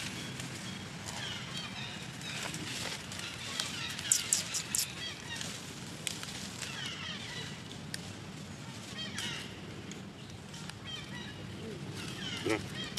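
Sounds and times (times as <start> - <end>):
sharp crackles: 0.0 - 11.2
baby monkey squeaking and crying: 3.8 - 5.0.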